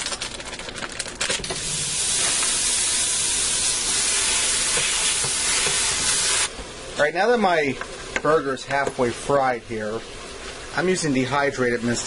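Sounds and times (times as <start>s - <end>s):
ground beef sizzling: 1.5s - 7.6s.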